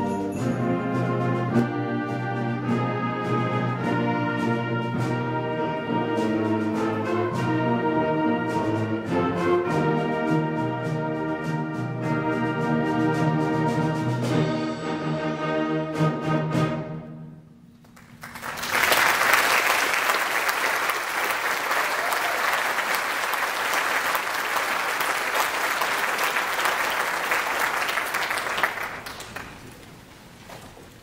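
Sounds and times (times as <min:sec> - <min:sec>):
audience applauding: 0:17.8 - 0:31.0.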